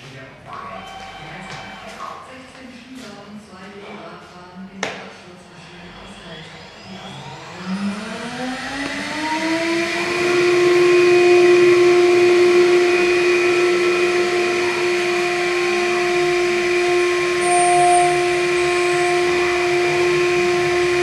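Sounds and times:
milling machine spindle whine: 5.6s - 21.0s.

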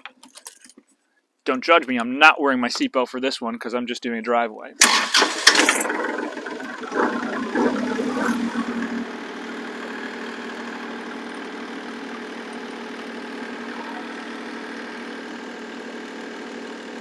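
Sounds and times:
diesel tractor engine running: 4.8s - 17.0s.

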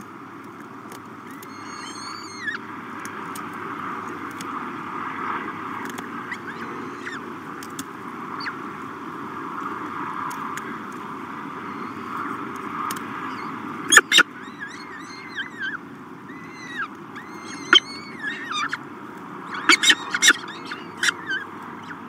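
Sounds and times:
background rumble and hiss: 0.0s - 22.0s
falcon chicks begging calls: 1.3s - 2.6s, 6.2s - 7.3s, 11.4s - 22.0s.

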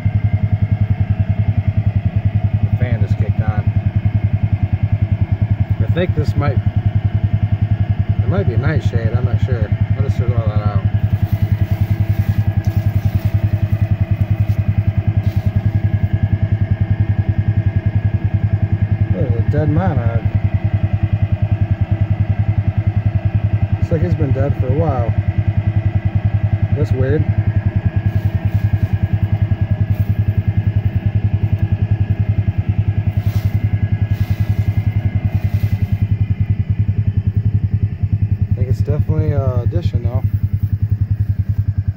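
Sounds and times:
engine idling: 0.0s - 41.9s
leaves rustling in plastic drum: 11.0s - 16.1s, 28.1s - 31.0s, 33.0s - 36.1s.

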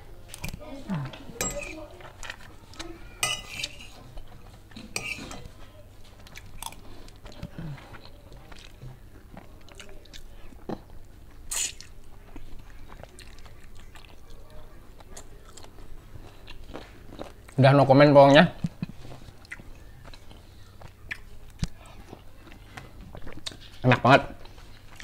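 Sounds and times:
spoon scraping china plate: 1.4s - 1.8s, 3.2s - 4.2s, 4.8s - 5.5s
chewing close to microphone: 6.2s - 17.6s, 18.6s - 25.0s.

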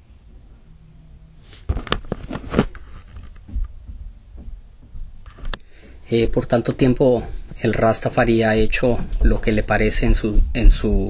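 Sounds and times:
thumps and clicks: 1.6s - 6.4s.

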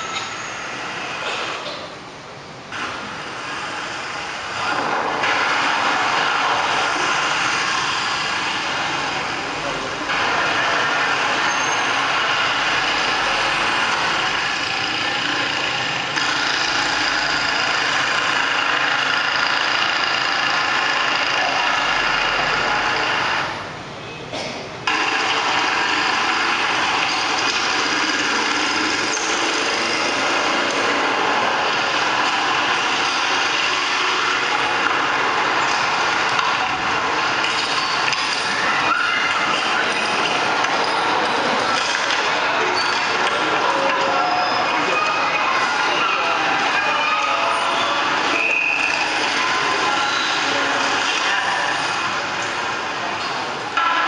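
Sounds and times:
film soundtrack traffic noise: 0.0s - 54.0s.

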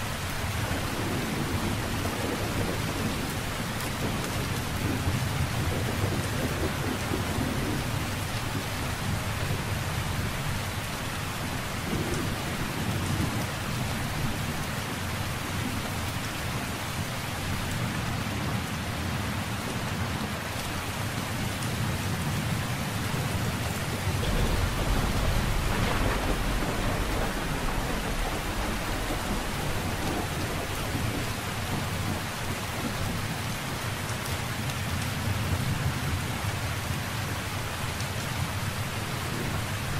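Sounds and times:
steady rain: 0.0s - 39.9s
thunder rumble: 0.4s - 10.5s, 21.8s - 33.3s.

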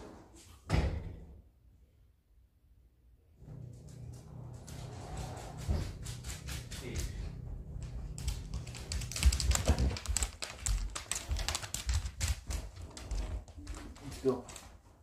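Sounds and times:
dog claws clicking on wooden floor: 5.5s - 15.0s.

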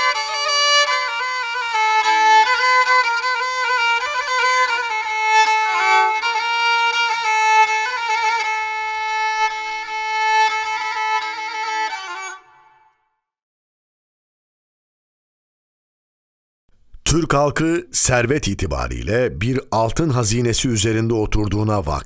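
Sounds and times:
solo bowed string melody: 0.0s - 13.1s.

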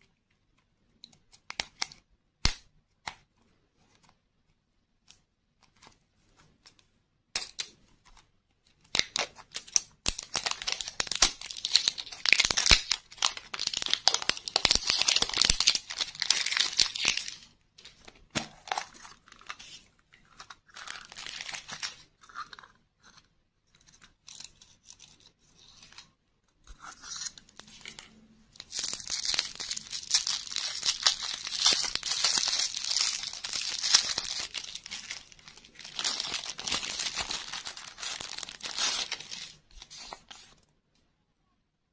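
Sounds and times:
shrink-wrap crackling and tearing: 8.9s - 17.5s, 28.6s - 40.5s
cellophane wrapper crinkling: 8.9s - 22.5s, 27.1s - 40.6s.

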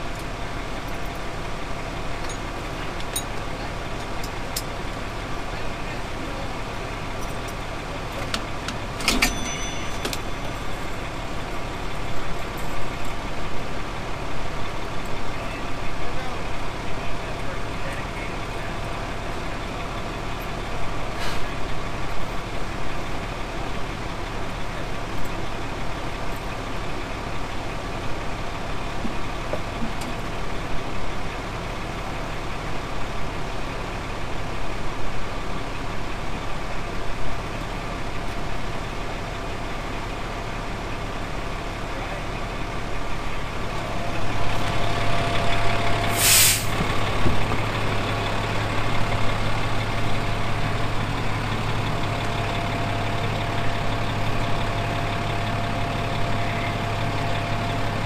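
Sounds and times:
truck engine idling: 0.0s - 58.0s
air release hiss: 46.1s - 46.8s.

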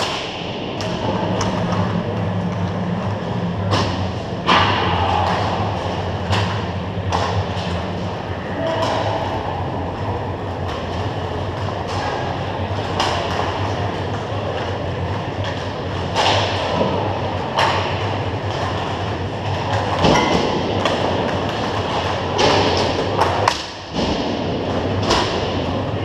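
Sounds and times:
low hum: 0.0s - 26.0s
rumble of skating: 0.0s - 26.0s
sticks hitting puck clacks: 3.7s - 9.2s, 11.8s - 13.7s, 15.4s - 18.8s.

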